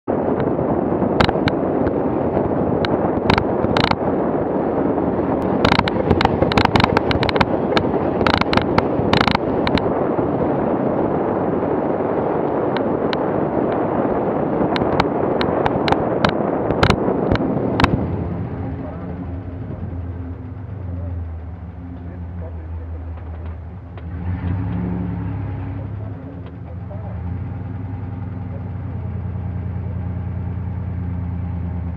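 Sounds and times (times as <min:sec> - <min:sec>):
engine tyres and wind rumble: 0:00.0 - 0:31.9
knocks and clacks from ruts: 0:00.3 - 0:04.1, 0:05.2 - 0:10.1, 0:14.6 - 0:30.3.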